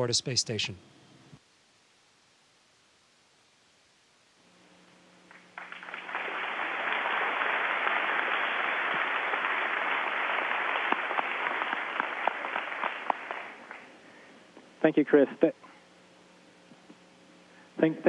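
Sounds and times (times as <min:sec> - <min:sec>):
single claps: 0:05.3 - 0:13.9
audience applauding: 0:05.3 - 0:14.0.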